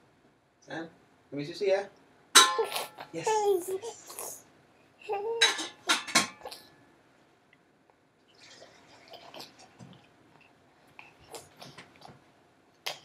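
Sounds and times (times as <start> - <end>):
kitchenware clinking and clattering: 2.4 - 3.1, 5.4 - 6.7
baby babbling: 2.6 - 4.4, 5.0 - 5.6.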